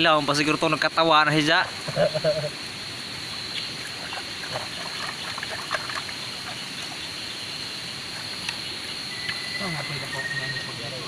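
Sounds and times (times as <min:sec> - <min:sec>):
water trickling over rocks: 0:03.1 - 0:09.4
small wet clicks and splashes: 0:03.8 - 0:07.0.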